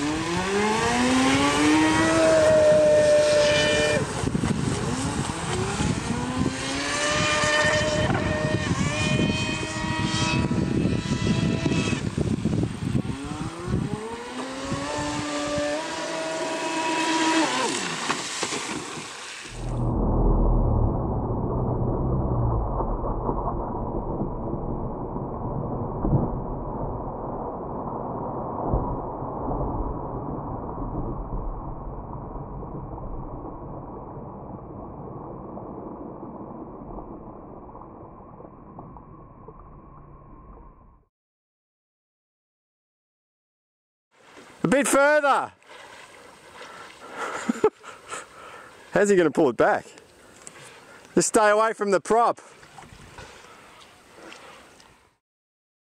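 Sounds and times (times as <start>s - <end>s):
toy boat motor whine: 0.0s - 18.0s
toy boat motor whining: 13.1s - 18.0s
low rumbling noise: 19.5s - 41.1s.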